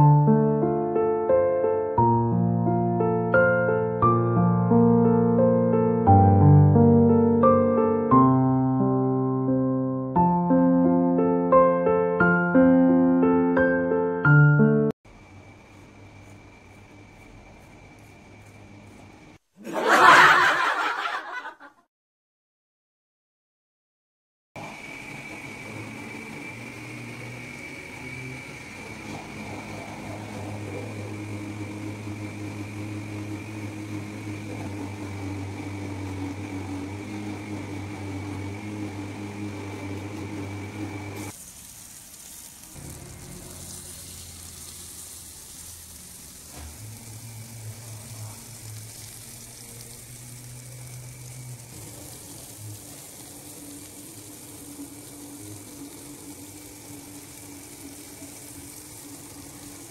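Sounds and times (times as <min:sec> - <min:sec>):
mechanical hum with whine: 0:15.1 - 0:19.4, 0:24.6 - 0:41.4, 0:42.8 - 0:59.9
fish sizzling in oil: 0:24.6 - 0:59.9.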